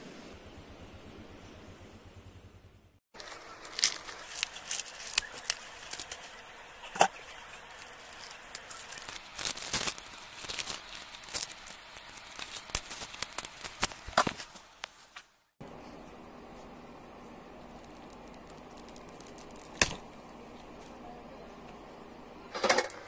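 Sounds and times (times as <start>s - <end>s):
corn husks tearing: 3.2s - 15.3s, 17.6s - 20.4s
husks snapping: 3.2s - 15.3s.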